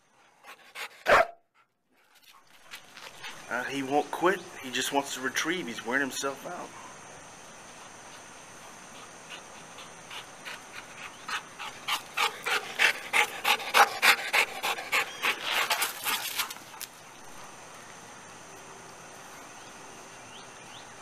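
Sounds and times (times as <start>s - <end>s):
dog panting: 0.2s - 3.5s, 8.0s - 16.6s.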